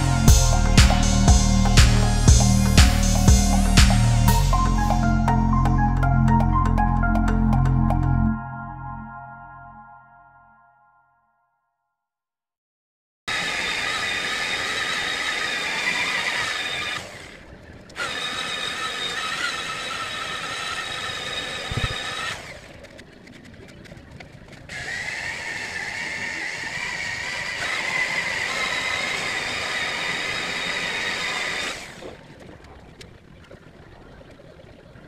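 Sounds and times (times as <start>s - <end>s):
electric polishers whining: 0.0s - 4.9s, 13.3s - 17.4s, 18.0s - 22.7s, 24.7s - 32.0s.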